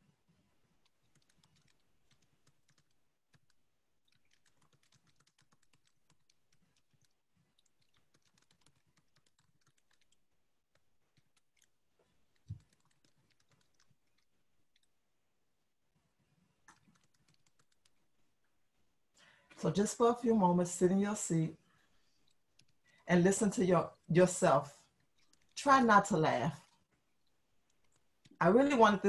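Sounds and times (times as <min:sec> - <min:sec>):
keyboard typing clicks: 0:00.9 - 0:11.7, 0:12.3 - 0:14.9, 0:16.6 - 0:18.0.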